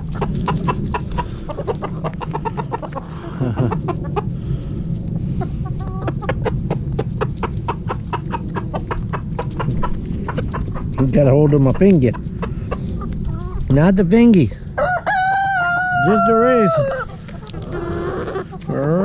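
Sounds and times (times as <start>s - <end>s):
chickens clucking: 0.0s - 19.0s.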